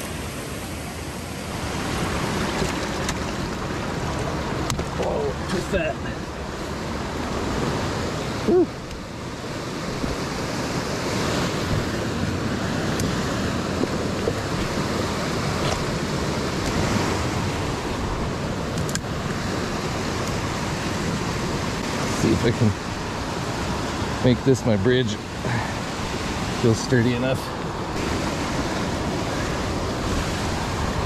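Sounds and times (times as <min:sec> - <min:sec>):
creek flowing: 0:00.0 - 0:31.0.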